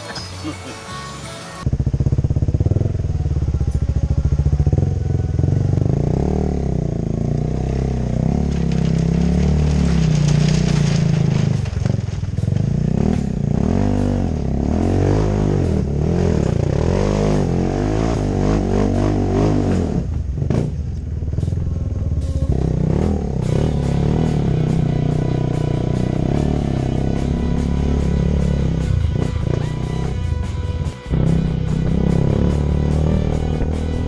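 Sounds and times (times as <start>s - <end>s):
motorcycle engine running: 1.2s - 34.0s
gravel crackling clatters: 7.5s - 13.9s.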